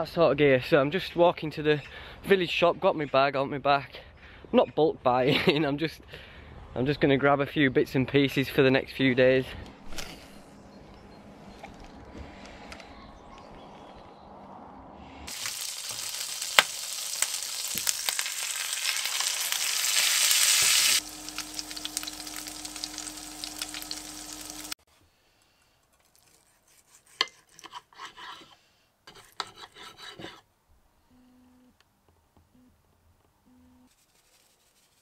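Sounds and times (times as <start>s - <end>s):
steak sizzling in a frying pan: 15.3s - 24.8s
steady hum: 21.0s - 24.8s
knife and fork scraping a plate: 26.1s - 30.4s.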